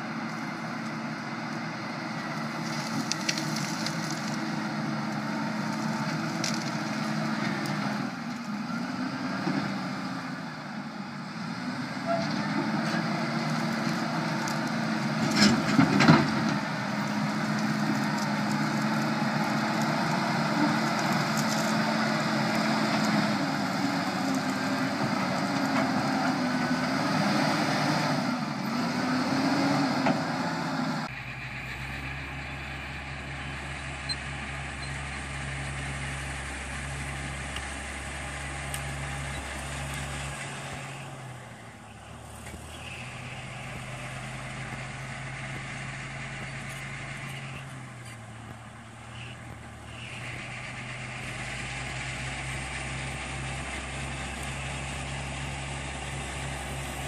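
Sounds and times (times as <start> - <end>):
diesel engine under load: 0.0 - 57.0
bush cracking and knocking: 2.3 - 7.9, 13.3 - 26.0.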